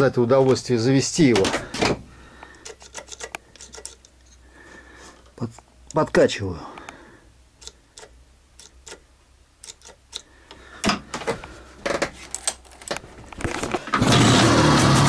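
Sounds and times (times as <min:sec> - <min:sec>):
sharp clicks and knocks: 0:01.2 - 0:04.2, 0:07.6 - 0:09.0, 0:09.6 - 0:14.0
two-stroke motorcycle engine running: 0:14.0 - 0:15.0.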